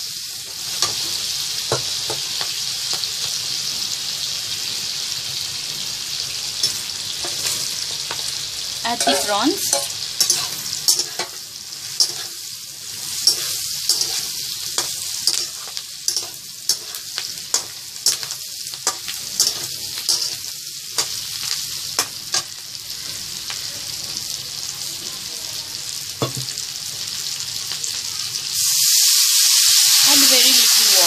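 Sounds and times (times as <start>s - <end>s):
food sizzling in a wok: 0.0s - 31.0s
metal spatula scraping and clacking: 8.9s - 12.4s, 13.2s - 21.2s.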